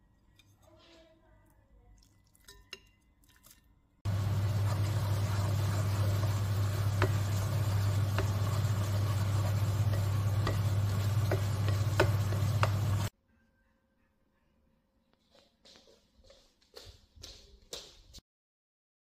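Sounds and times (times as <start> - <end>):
chopsticks stirring noodles in a pot: 4.1 - 13.1
steady low hum: 4.1 - 13.1.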